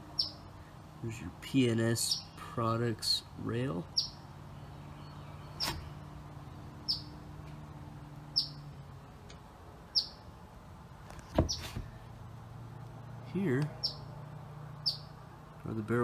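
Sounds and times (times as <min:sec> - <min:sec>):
bird chirping: 0:00.0 - 0:00.7, 0:01.8 - 0:07.2, 0:08.3 - 0:10.4, 0:11.2 - 0:12.1, 0:13.3 - 0:15.3.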